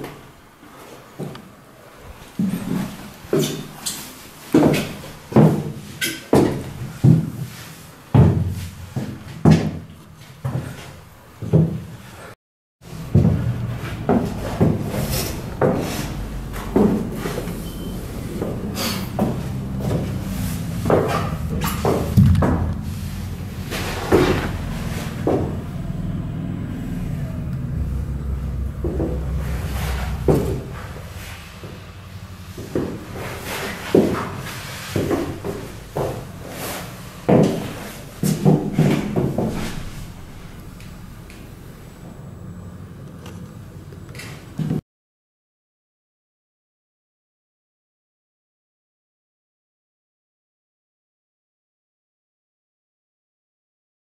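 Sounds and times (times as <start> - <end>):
footsteps on fiberglass deck: 12.9 - 17.6, 18.3 - 25.6, 32.5 - 40.3
steady low hum: 12.9 - 44.6
hollow boom: 13.1 - 42.8
hollow thumps: 18.4 - 26.0.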